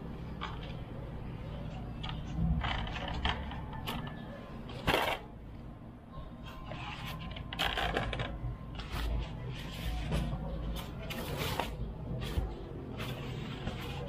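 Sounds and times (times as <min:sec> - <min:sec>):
foam parts being handled: 0:06.4 - 0:14.0.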